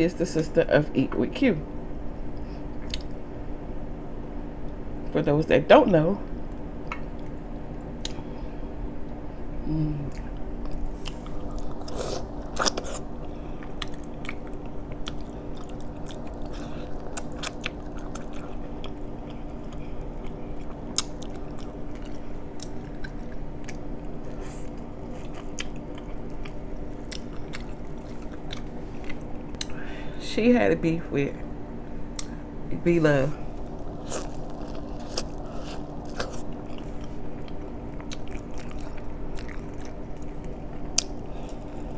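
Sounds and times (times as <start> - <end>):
steady low hum: 0.0 - 41.9
chewing corn on the cob: 10.1 - 29.7, 33.6 - 41.9.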